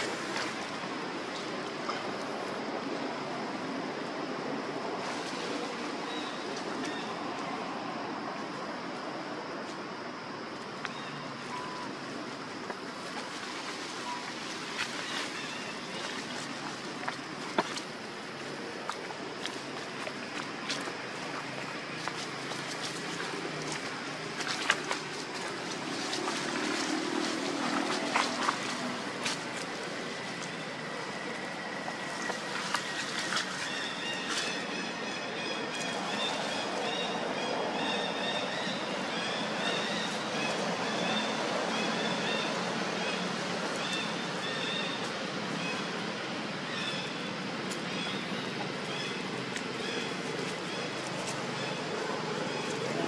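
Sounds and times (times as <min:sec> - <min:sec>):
outdoor background hiss: 0:00.0 - 0:53.0
dry leaves crackling: 0:10.9 - 0:45.8.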